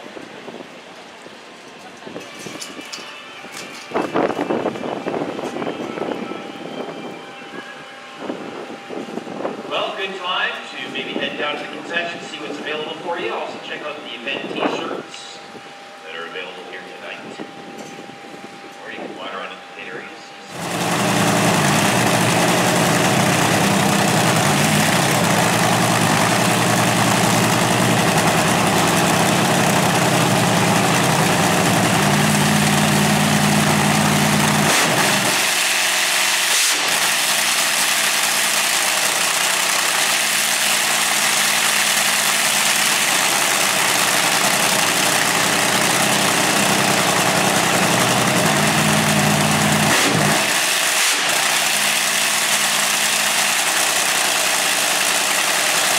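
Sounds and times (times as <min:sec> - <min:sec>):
supercharged engine idling loudly: 0:20.4 - 0:55.9.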